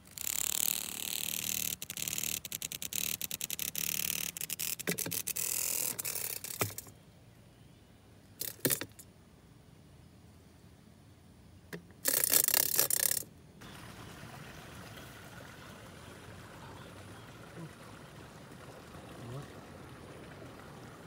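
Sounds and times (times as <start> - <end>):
cicada rasping distress buzz: 0.0 - 6.9.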